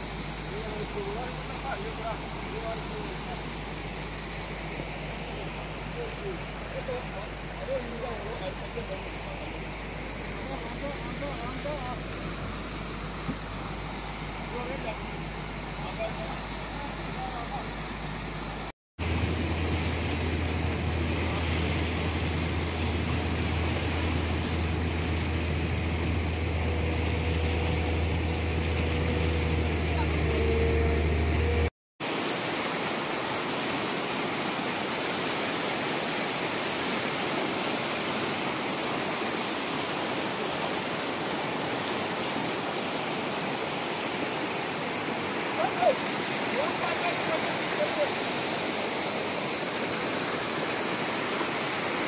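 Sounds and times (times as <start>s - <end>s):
river water rushing: 0.0s - 52.0s
low hum: 17.8s - 31.7s.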